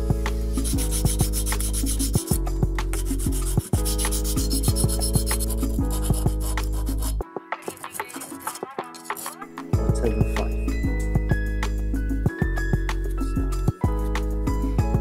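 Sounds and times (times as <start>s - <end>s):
background music with steady beat: 0.0s - 15.0s
sandpaper rubbing on metal bar: 0.4s - 2.4s, 3.0s - 9.5s.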